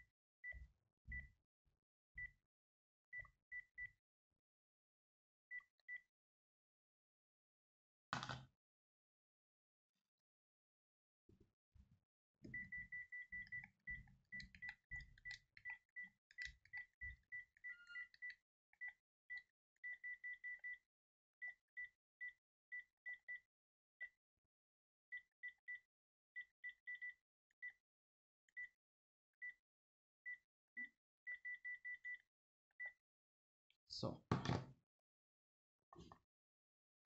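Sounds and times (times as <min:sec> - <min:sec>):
phone key-press beeps: 0:12.5 - 0:20.8.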